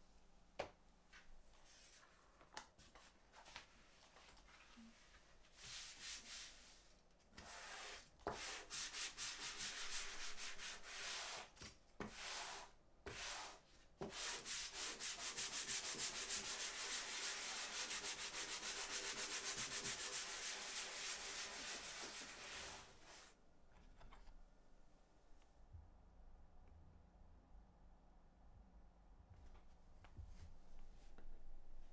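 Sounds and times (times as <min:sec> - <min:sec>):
leather being sanded by hand: 0:12.2 - 0:23.3.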